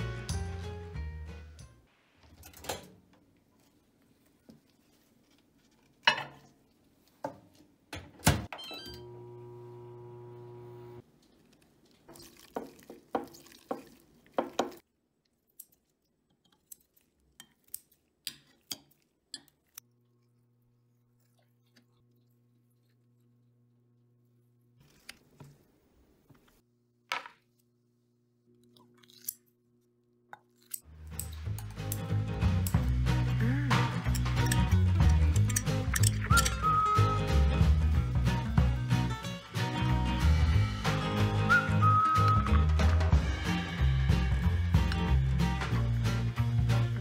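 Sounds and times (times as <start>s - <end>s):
appliance hum: 8.0s - 11.0s.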